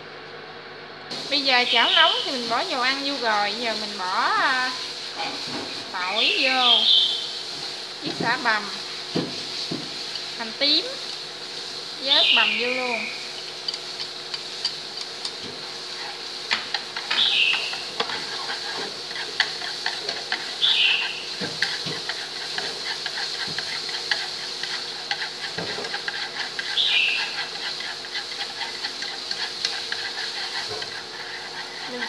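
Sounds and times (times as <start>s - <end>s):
food sizzling in hot oil: 1.1s - 32.0s
chopsticks tapping and scraping pan: 8.0s - 11.2s, 13.4s - 32.0s.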